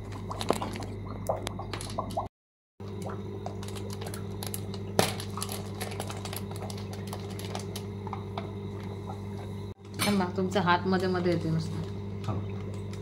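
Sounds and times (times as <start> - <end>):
plastic bag crackling: 3.5 - 7.9.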